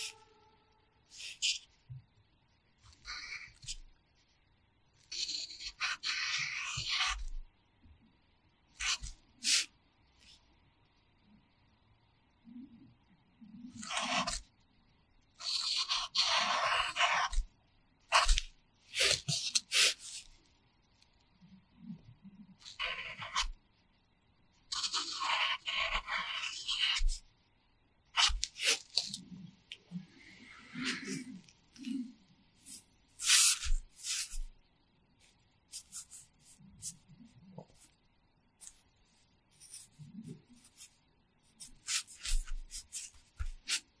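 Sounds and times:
pencil scratching on paper: 0:00.0 - 0:00.5, 0:01.1 - 0:01.7, 0:02.8 - 0:03.8, 0:05.0 - 0:07.3, 0:08.8 - 0:10.4, 0:13.7 - 0:14.4, 0:15.4 - 0:17.5, 0:18.1 - 0:20.3, 0:22.6 - 0:23.6, 0:24.7 - 0:27.2, 0:28.2 - 0:29.2, 0:30.4 - 0:32.0, 0:32.6 - 0:34.5, 0:35.2 - 0:38.0, 0:38.6 - 0:44.0
sharp paper sounds: 0:32.7 - 0:34.5.

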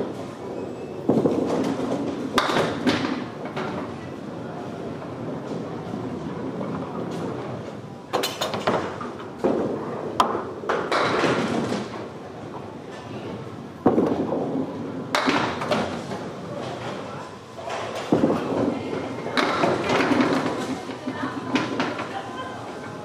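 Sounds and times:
bowling balls rolling: 0:00.0 - 0:23.0
bowling pins crashing: 0:08.2 - 0:12.1, 0:13.8 - 0:16.3, 0:17.8 - 0:22.2.

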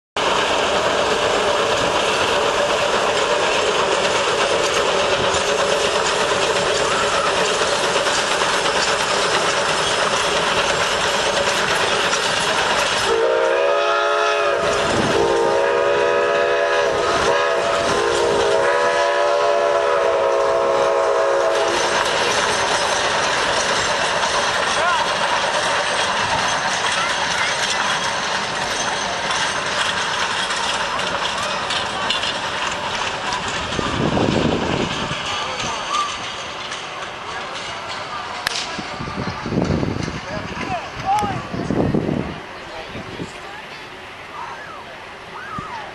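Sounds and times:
train wheels rumbling and clattering: 0:00.2 - 0:44.3
steam whistle blasts: 0:13.0 - 0:21.8, 0:44.4 - 0:45.9.

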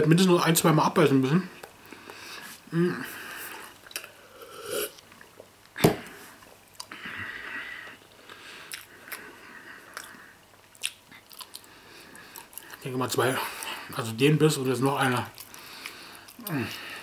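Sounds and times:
person sipping from cup: 0:03.4 - 0:05.0
person chewing food: 0:08.0 - 0:12.8, 0:15.3 - 0:17.0
wet mouth clicks: 0:09.9 - 0:11.7.

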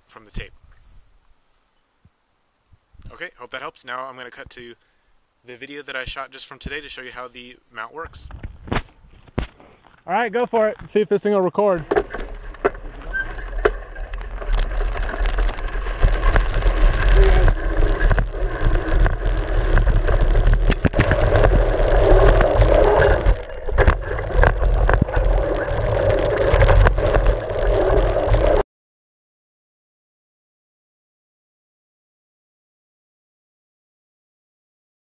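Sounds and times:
bike knocking and rattling: 0:11.8 - 0:19.1
bike tyres rumbling on dirt: 0:11.8 - 0:28.6.

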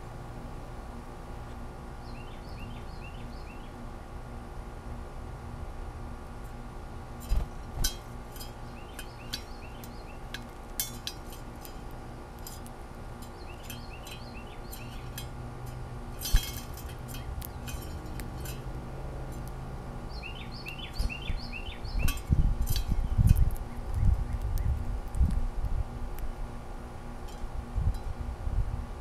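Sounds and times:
bird chirping: 0:02.0 - 0:03.8, 0:08.7 - 0:10.3, 0:13.3 - 0:15.2, 0:20.1 - 0:24.8.

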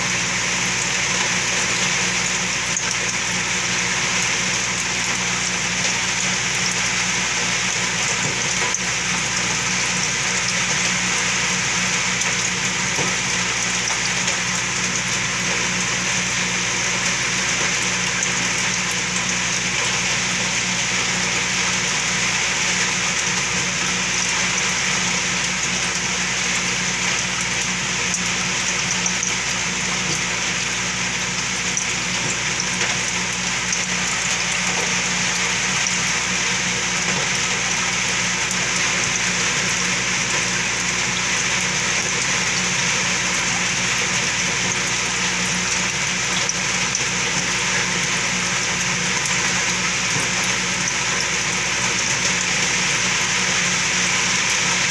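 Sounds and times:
pump humming: 0:00.0 - 0:54.9
water splashing and bubbling: 0:00.0 - 0:54.9.

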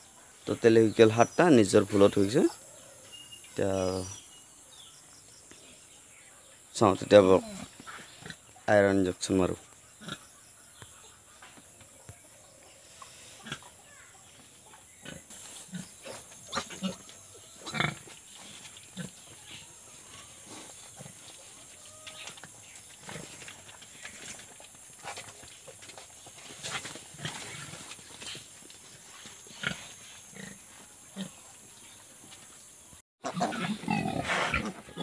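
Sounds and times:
sow grunting: 0:33.2 - 0:35.0.

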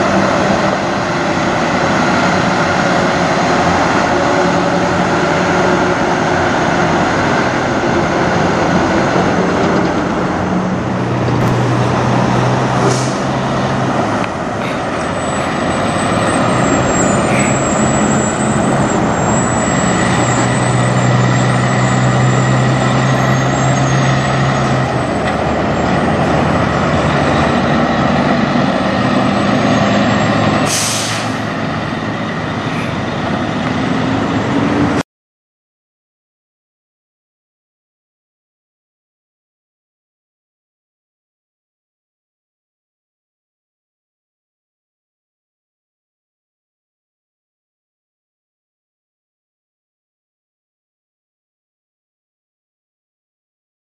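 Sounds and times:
diesel truck engines: 0:00.0 - 0:35.0
air brake hisses: 0:12.8 - 0:13.3, 0:17.2 - 0:18.0, 0:30.6 - 0:31.5.

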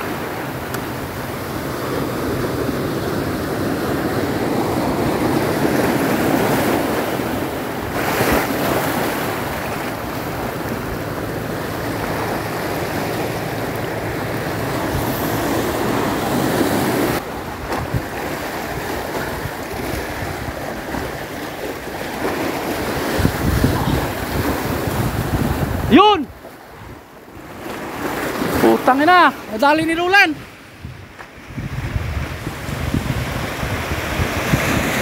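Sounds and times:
wind buffeting microphone: 0:00.0 - 0:28.7, 0:29.8 - 0:35.0
sea waves washing in: 0:00.0 - 0:35.0.

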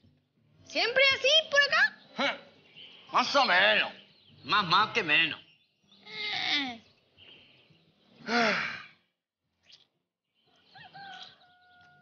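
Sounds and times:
person sighing loudly: 0:08.2 - 0:09.0.

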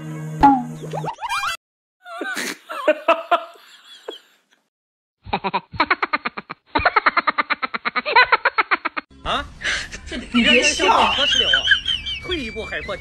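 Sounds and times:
person laughing hard: 0:05.3 - 0:09.1.

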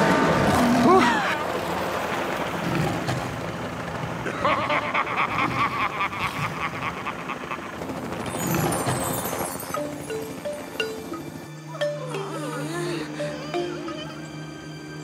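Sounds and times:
helicopter engine and rotor rumble: 0:01.5 - 0:04.3, 0:07.0 - 0:11.7.

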